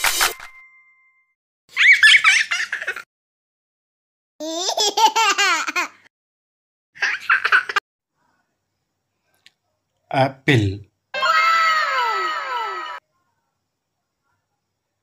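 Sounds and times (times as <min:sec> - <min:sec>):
baby laughing: 0:01.7 - 0:03.1, 0:04.4 - 0:06.1, 0:07.0 - 0:07.8.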